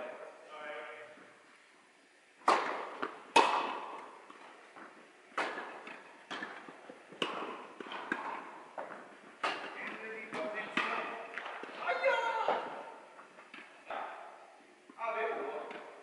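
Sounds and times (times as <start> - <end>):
tennis ball hits and bounces: 2.4 - 14.4.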